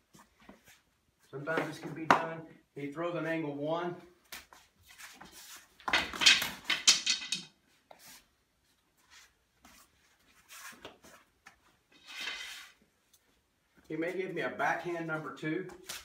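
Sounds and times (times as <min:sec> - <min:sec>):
feet scuffing on mats: 0:04.2 - 0:05.9, 0:08.9 - 0:11.8.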